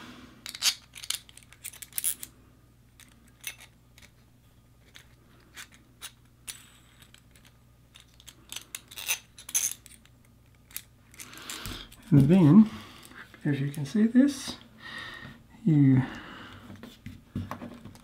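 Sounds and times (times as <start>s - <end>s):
small metal parts clicking: 0.4s - 2.3s, 3.0s - 4.2s, 4.8s - 12.0s.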